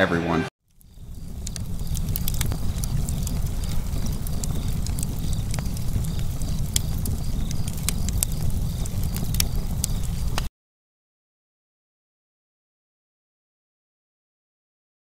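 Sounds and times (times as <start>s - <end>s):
fire crackling and popping: 0.6s - 10.5s
fire low rumble: 0.6s - 10.5s.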